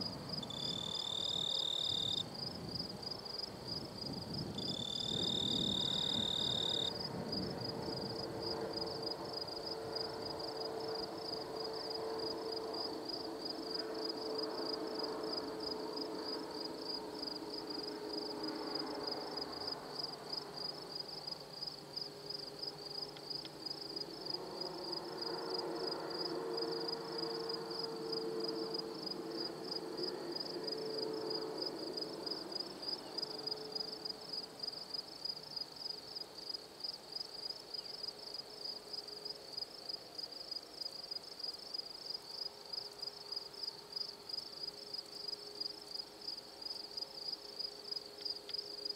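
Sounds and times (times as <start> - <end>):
distant diesel locomotive rumble: 0.0 - 34.6
crickets trilling: 0.0 - 48.9.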